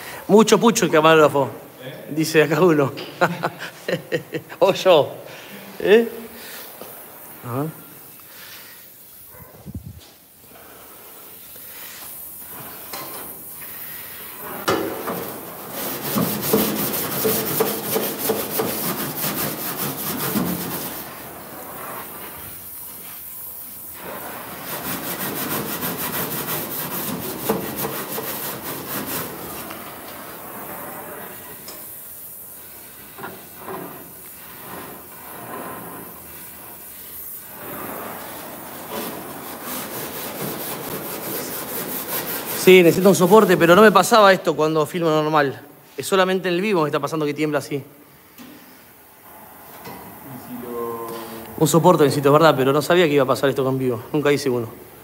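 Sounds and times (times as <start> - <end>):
gas torch crackling on metal: 5.9 - 45.2.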